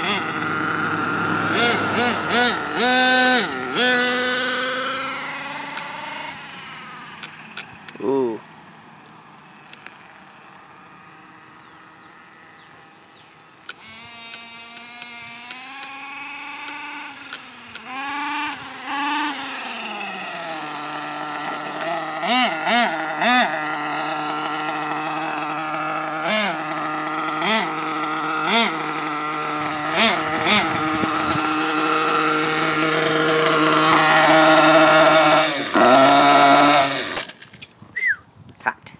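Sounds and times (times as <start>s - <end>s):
small engine idling with throttle blips: 0.0s - 38.1s.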